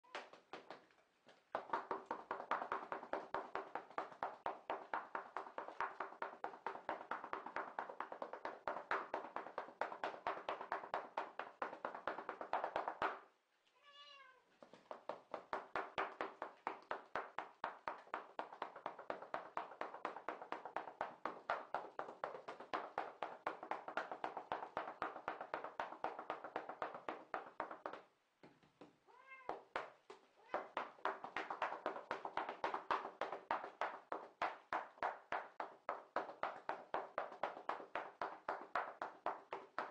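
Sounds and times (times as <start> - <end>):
cat meowing: 13.7 - 14.5, 29.1 - 29.6.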